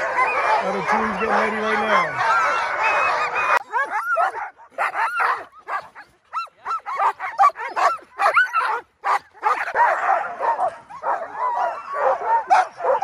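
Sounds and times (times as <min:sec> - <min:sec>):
dogs yipping and barking: 0:00.0 - 0:13.0.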